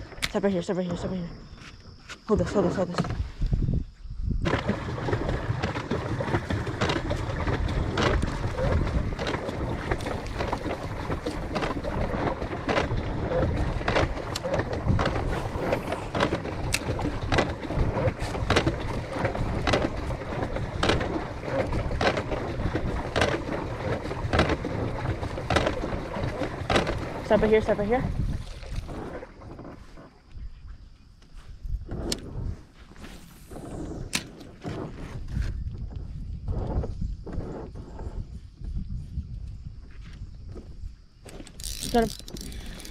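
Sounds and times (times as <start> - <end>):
water along boat hull: 0.0 - 42.9
wind rumble on microphone: 0.0 - 42.9
fishing tackle clicks: 41.3 - 42.9.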